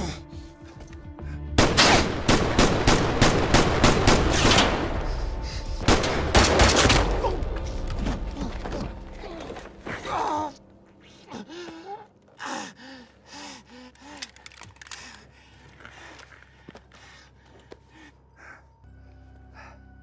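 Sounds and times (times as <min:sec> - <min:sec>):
rapid gunfire: 0:01.6 - 0:04.9.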